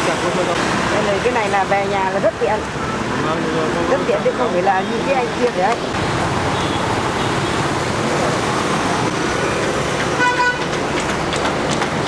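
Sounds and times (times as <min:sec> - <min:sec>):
motorbikes passing: 0:00.0 - 0:12.0
horn toot: 0:10.2 - 0:10.7.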